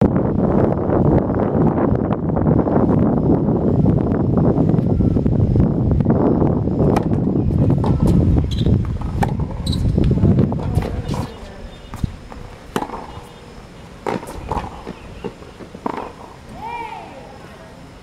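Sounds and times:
wind buffeting microphone: 0.0s - 17.1s
tennis ball hit and bouncing: 6.8s - 13.4s, 14.0s - 16.4s.

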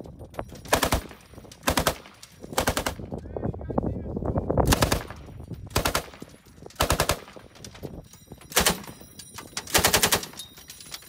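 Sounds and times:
machine gun bursts: 6.8s - 7.4s, 8.5s - 9.0s, 9.7s - 10.4s.

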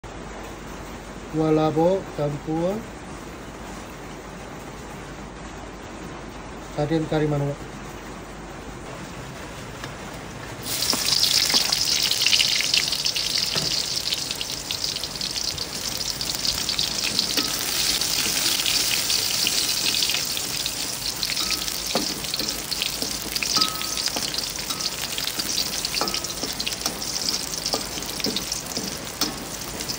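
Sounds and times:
oil sizzling in a wok: 10.6s - 29.9s
metal spatula stirring: 16.3s - 29.9s
spatula tapping on wok: 21.3s - 29.9s.

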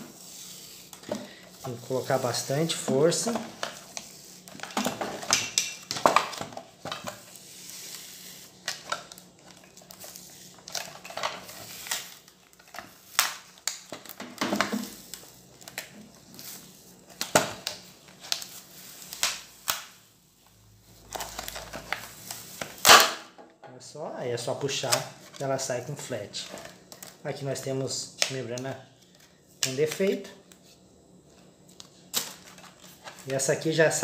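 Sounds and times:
plastic film crackling and snapping: 0.7s - 23.2s, 26.4s - 27.4s, 31.6s - 33.5s.

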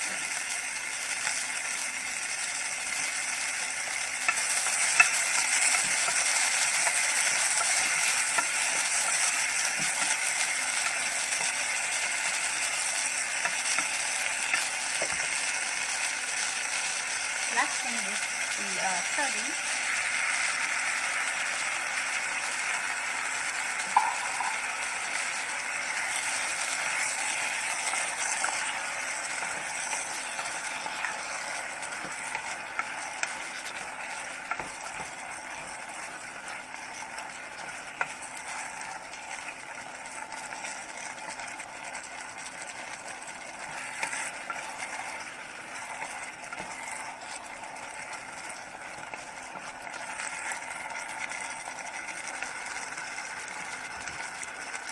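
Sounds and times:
food sizzling in a hot pan: 0.0s - 54.9s
spoon knocking against pan: 23.9s - 24.7s.

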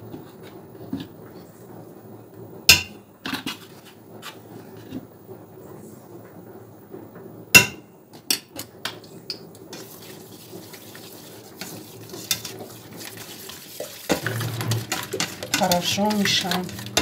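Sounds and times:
whisk scraping in metal pot: 9.7s - 17.0s.

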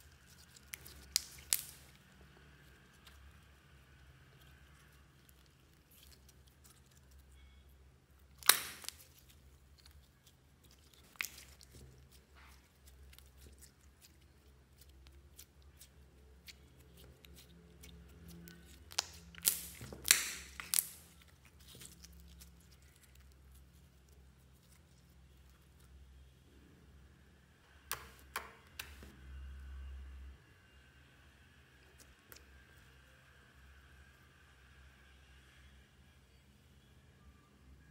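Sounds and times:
slime popping: 0.0s - 2.0s, 8.2s - 23.4s
sticky slime crackles: 0.0s - 26.0s.

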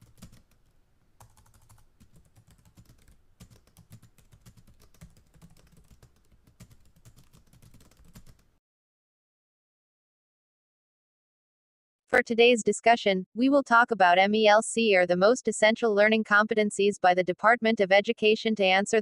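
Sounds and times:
keyboard typing clicks: 0.0s - 8.4s.

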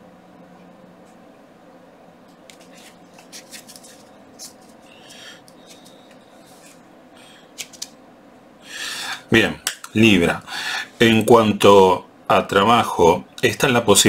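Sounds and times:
low steady hum: 0.0s - 14.0s
cards clicking and snapping: 7.6s - 8.0s.

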